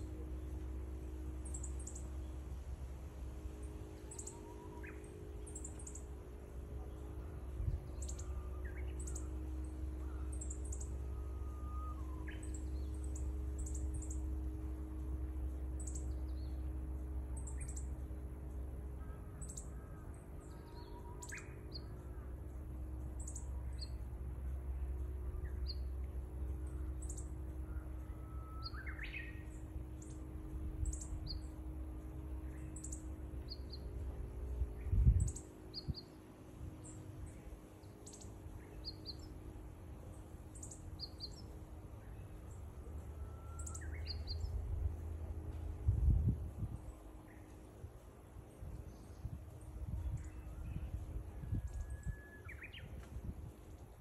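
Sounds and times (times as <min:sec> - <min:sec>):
low hum: 0:00.0 - 0:54.0
small birds chirping: 0:00.0 - 0:54.0
bird rising call: 0:03.9 - 0:06.2, 0:06.8 - 0:14.3, 0:43.0 - 0:44.6.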